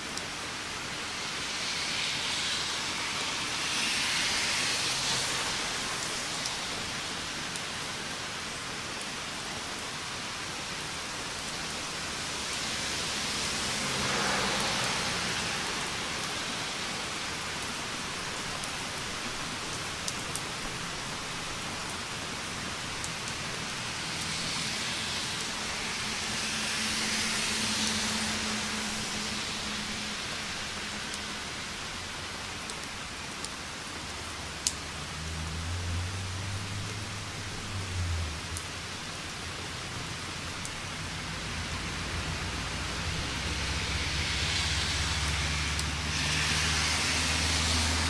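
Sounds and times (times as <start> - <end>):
rain falling: 0.0 - 48.0
raindrop ticks: 34.6 - 35.6.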